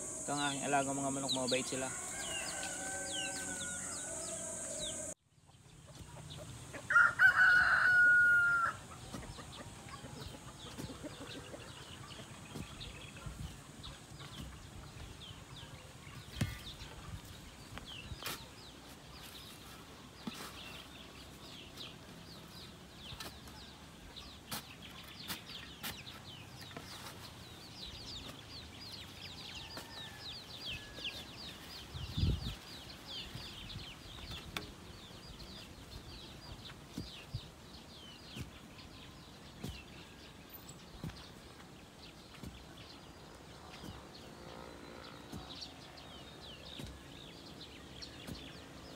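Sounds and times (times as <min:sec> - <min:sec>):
chickens clucking: 0:00.0 - 0:06.9, 0:08.8 - 0:17.4.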